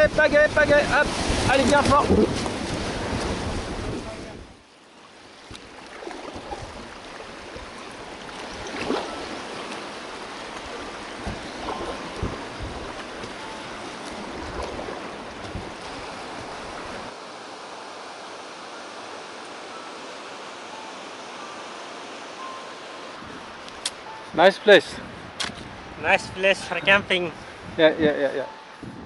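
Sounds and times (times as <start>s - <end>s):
wind buffeting microphone: 0.0s - 4.7s, 5.4s - 17.2s, 23.2s - 29.0s
whitewater splashing against raft: 0.0s - 24.8s
river rushing over rapids: 0.0s - 29.0s.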